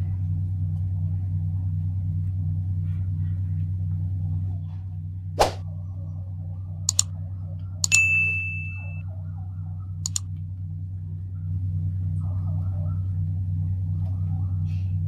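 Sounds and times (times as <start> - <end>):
pulsing low machine hum: 0.0 - 15.0
mouse clicks: 7.8 - 8.0
bell ding: 7.8 - 9.0.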